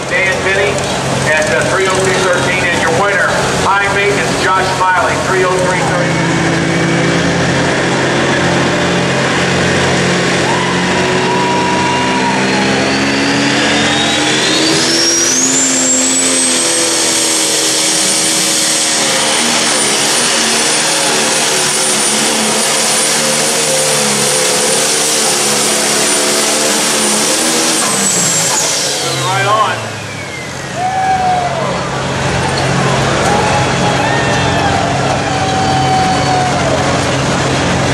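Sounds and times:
diesel engine running hard: 0:00.0 - 0:37.9
turbo whistle: 0:10.4 - 0:17.0, 0:27.8 - 0:31.8.

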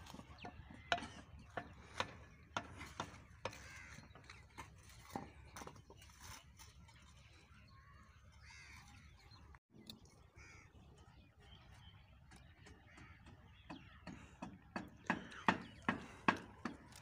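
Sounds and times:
faint crow caws: 0:00.5 - 0:04.8, 0:07.7 - 0:09.1, 0:10.3 - 0:10.8, 0:12.4 - 0:16.9.

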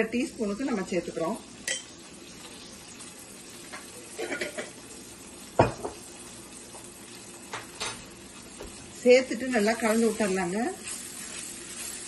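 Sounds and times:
onions sizzling in a pan: 0:00.0 - 0:12.0
kitchen utensils clinking: 0:03.7 - 0:04.8.

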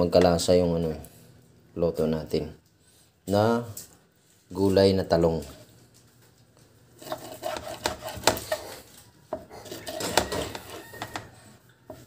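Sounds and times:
kitchen utensils clattering: 0:09.6 - 0:10.8.

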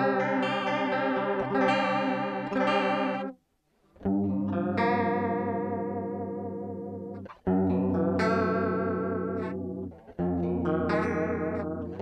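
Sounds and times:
electric guitar chords with chorus: 0:00.0 - 0:03.4, 0:04.0 - 0:12.0.

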